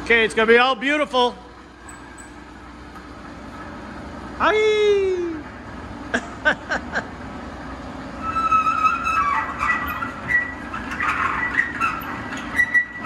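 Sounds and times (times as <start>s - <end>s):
steady low hum: 0.0s - 13.0s
high metallic squeaks: 1.8s - 2.5s, 8.2s - 13.0s.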